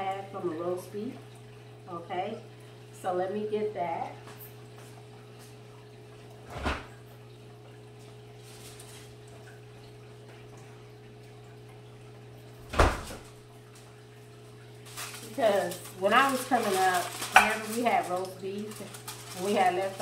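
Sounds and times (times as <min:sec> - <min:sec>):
refrigerator door shutting: 0:06.4 - 0:07.0, 0:12.6 - 0:13.4.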